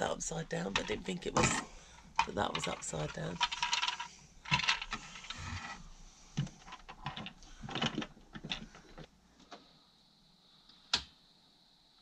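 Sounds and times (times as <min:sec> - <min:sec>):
small hard parts clicking and rattling: 0:00.6 - 0:05.8, 0:06.4 - 0:09.1.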